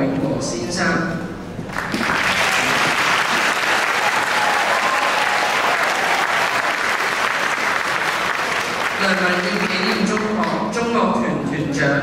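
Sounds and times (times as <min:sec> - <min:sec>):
audience applauding: 0:01.7 - 0:10.6.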